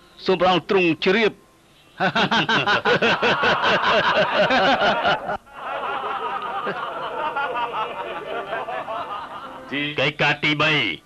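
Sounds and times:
person laughing heartily: 2.0s - 9.6s.

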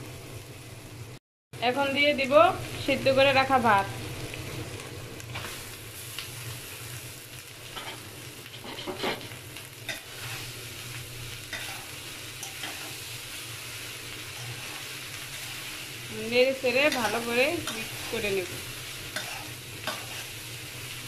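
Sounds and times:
food sizzling in a metal pan: 0.0s - 21.0s
metal spatula scraping a pan: 7.8s - 10.6s, 11.4s - 13.0s, 14.3s - 15.7s, 16.8s - 18.4s, 19.1s - 20.4s.

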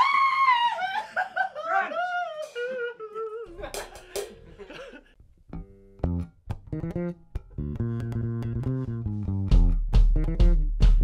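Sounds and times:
electric bass guitar notes: 5.5s - 11.0s.

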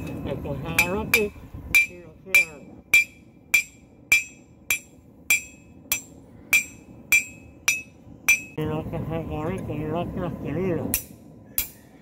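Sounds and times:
hammer striking horseshoe on anvil: 0.0s - 8.6s, 10.9s - 11.9s.

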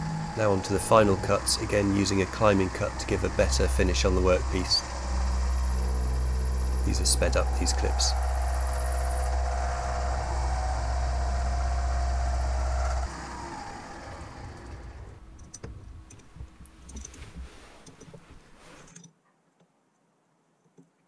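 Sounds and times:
milling machine cutting metal: 0.0s - 15.1s.

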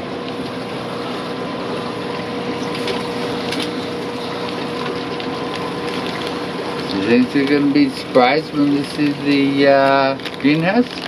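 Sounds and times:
pump hum: 0.0s - 11.0s
running water: 0.0s - 11.0s.

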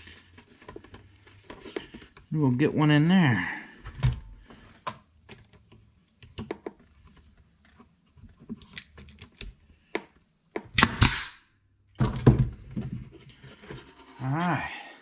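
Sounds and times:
tools and wood clicking: 4.9s - 10.7s
nail gun firing into wood: 10.7s - 11.4s.

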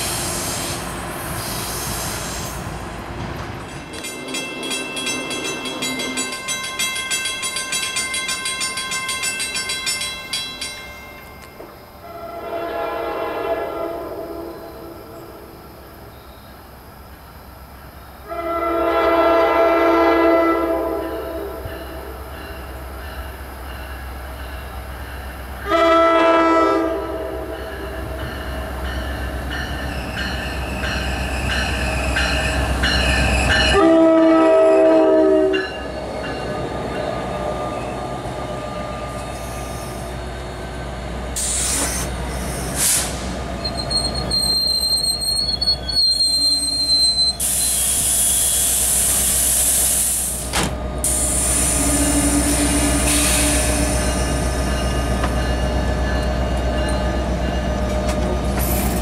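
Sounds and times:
train rolling past: 0.0s - 59.0s
train horn blasts: 12.0s - 15.4s, 18.2s - 22.1s, 25.6s - 28.2s, 33.5s - 35.8s, 51.6s - 54.3s
high wheel squeal: 41.4s - 50.4s, 51.0s - 55.3s.

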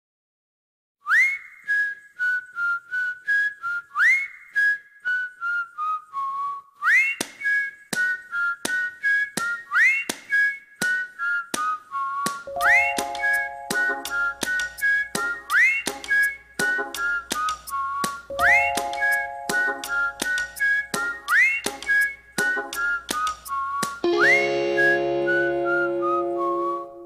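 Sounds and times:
whistled tune: 1.0s - 27.0s
clicking beat: 12.5s - 24.1s.

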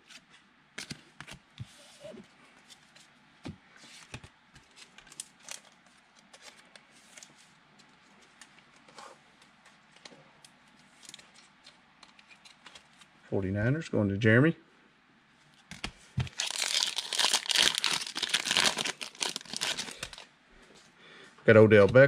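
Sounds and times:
cards clicking and rustling: 9.4s - 13.1s, 15.7s - 20.2s.

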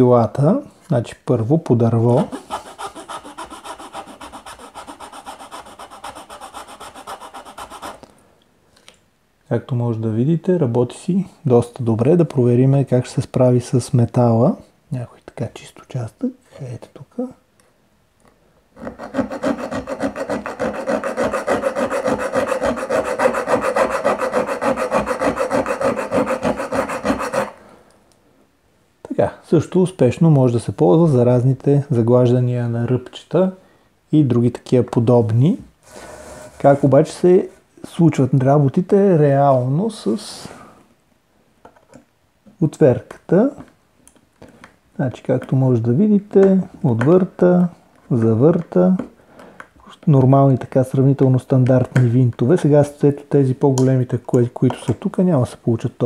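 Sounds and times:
metal file rasping on wood: 2.2s - 8.0s, 18.8s - 27.6s.

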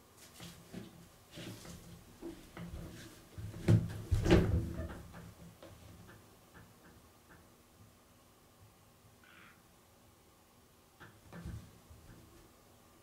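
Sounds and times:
soft knocks and rustles: 0.1s - 7.4s, 11.0s - 12.5s.

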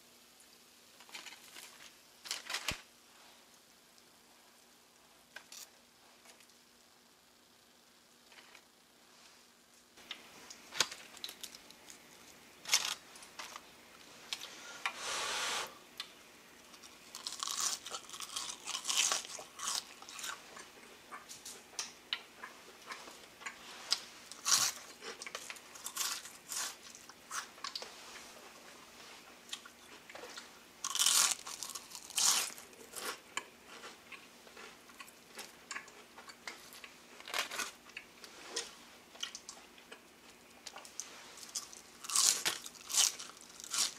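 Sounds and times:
crunchy food being chewed: 10.1s - 13.7s, 16.0s - 28.0s, 29.4s - 43.9s.

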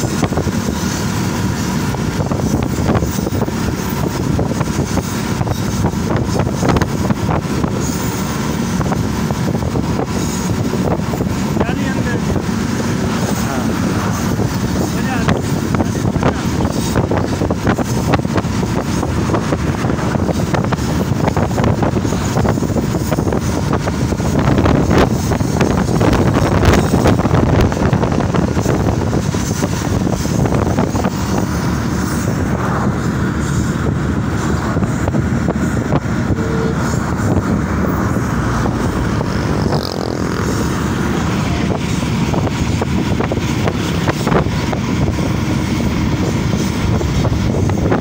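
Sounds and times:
train rumbling: 0.0s - 48.0s
wind noise: 0.0s - 48.0s.

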